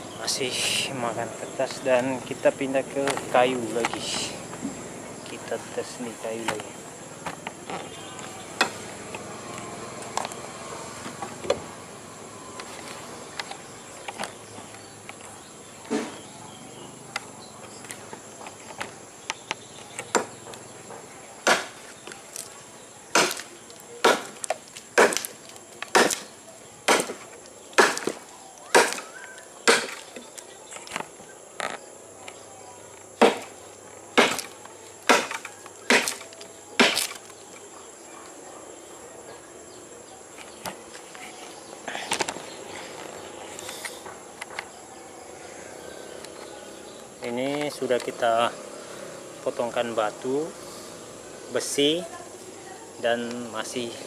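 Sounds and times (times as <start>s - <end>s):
insects buzzing: 0.0s - 54.0s
machete chopping log: 21.4s - 21.8s, 23.1s - 30.3s, 33.2s - 33.6s, 34.2s - 37.3s.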